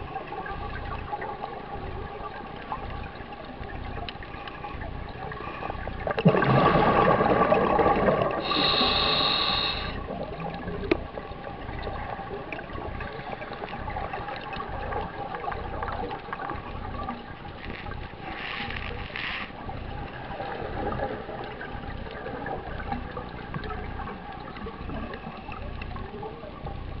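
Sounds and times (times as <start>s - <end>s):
exhaled bubbles burbling: 0.0s - 27.0s
hissing regulator inhale: 4.3s - 6.0s, 8.3s - 10.2s.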